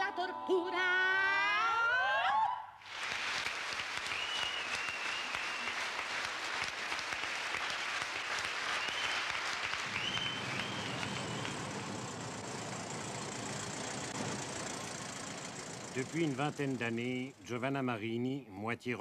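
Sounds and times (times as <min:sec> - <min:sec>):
audience applauding: 0:02.8 - 0:12.7.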